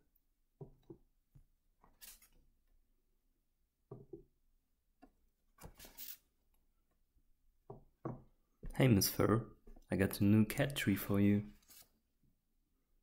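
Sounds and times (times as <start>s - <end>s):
paper rustling: 2.0s - 2.4s, 5.6s - 6.2s, 11.6s - 12.0s.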